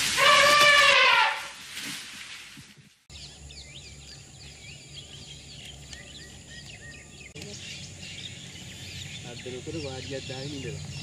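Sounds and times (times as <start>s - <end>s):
birds chirping and calling: 3.1s - 11.0s.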